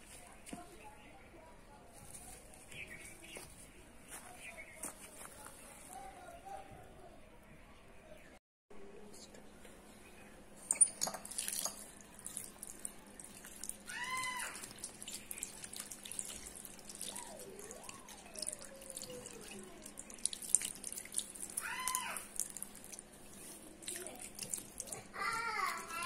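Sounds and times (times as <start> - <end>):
tap water running into basin: 10.7 - 26.0
hands rubbed and rinsed: 11.2 - 26.0
high arching cries: 13.8 - 14.9, 21.4 - 22.7.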